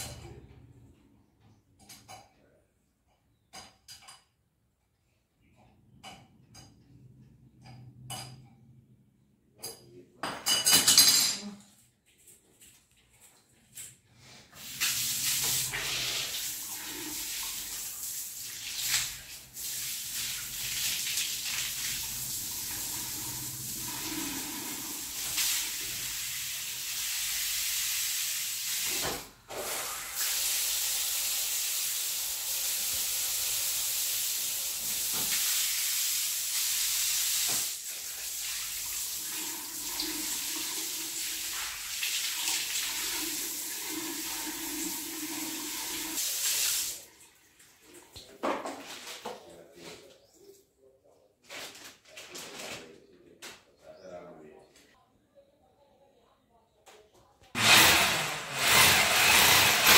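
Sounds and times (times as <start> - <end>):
shower water spraying: 14.2 - 47.1, 57.6 - 59.9.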